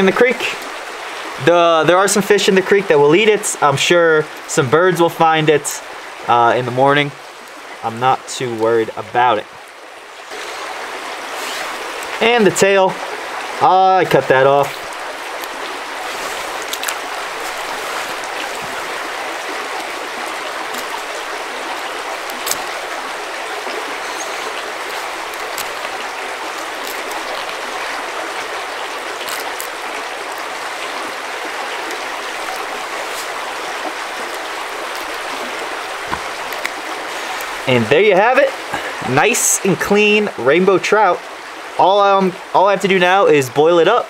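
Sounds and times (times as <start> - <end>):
creek rushing: 0.0 - 44.0
faint clicks: 36.1 - 36.8.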